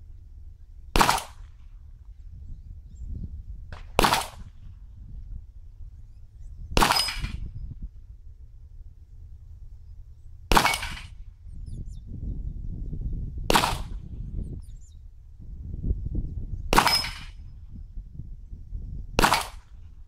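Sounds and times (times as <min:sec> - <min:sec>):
pistol shots: 0:01.0 - 0:01.6, 0:03.8 - 0:04.6, 0:06.8 - 0:07.4, 0:10.5 - 0:11.2, 0:13.5 - 0:14.0, 0:16.7 - 0:17.4, 0:19.2 - 0:19.8.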